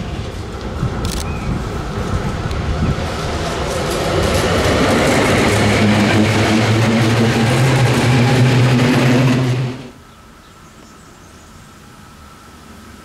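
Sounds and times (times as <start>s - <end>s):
tram wheels rumbling on rails: 0.0s - 10.0s.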